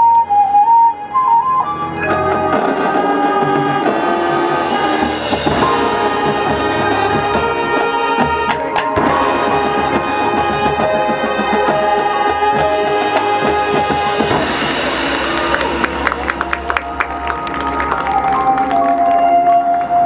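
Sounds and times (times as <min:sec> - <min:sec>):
marching band playing: 0:00.0 - 0:20.0
cymbal crash: 0:13.2 - 0:17.6.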